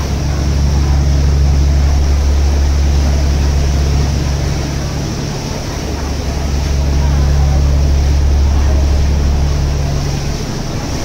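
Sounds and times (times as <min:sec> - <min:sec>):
boat engine droning: 0:00.0 - 0:11.0
water churning in wake: 0:00.0 - 0:11.0.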